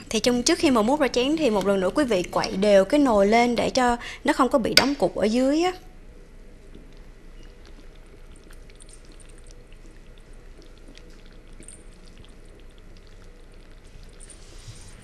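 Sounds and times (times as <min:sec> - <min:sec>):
thick soup pouring: 0:06.6 - 0:15.0.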